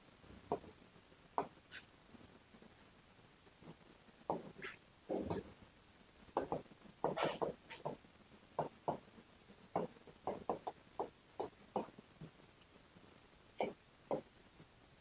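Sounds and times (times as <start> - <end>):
writing taps and scrapes on board: 4.3 - 5.4, 6.4 - 8.0.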